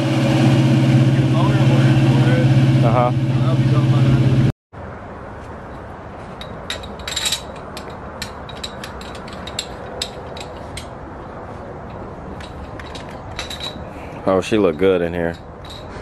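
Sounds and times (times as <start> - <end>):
light metallic clicks and clinks: 6.4 - 11.0.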